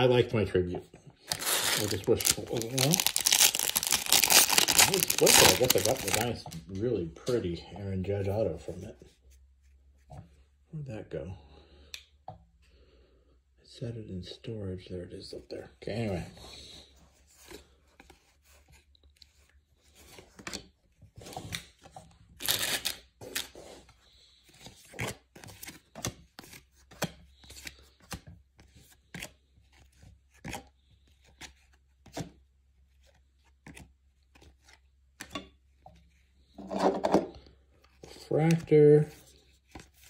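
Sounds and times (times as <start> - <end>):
cards rustling: 1.2 - 6.7, 22.4 - 35.3.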